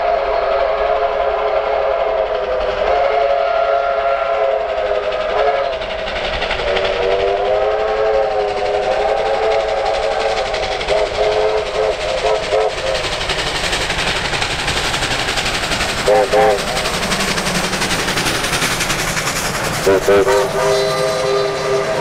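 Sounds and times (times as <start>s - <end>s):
steam locomotive whistle: 0.0s - 5.9s, 6.6s - 13.1s, 16.0s - 17.0s, 19.8s - 22.0s
train rushing: 0.0s - 22.0s.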